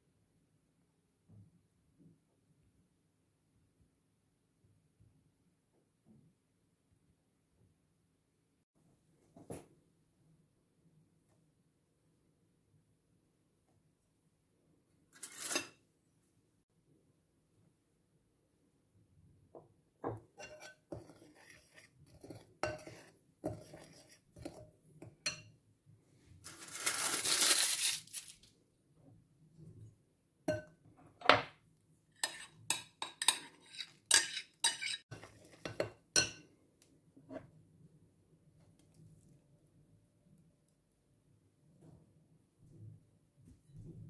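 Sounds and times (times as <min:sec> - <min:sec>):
spatula stirring batter in glass bowl: 0:20.1 - 0:25.6, 0:32.2 - 0:36.4.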